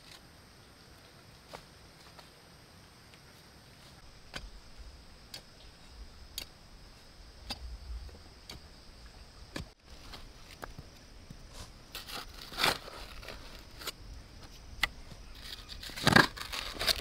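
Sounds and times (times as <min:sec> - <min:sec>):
shovel digging into soil: 0:11.6 - 0:14.0.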